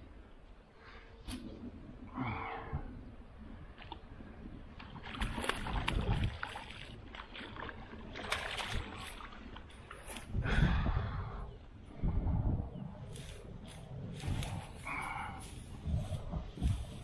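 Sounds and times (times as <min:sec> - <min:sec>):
fish splashing and thrashing in water: 0:04.8 - 0:10.4.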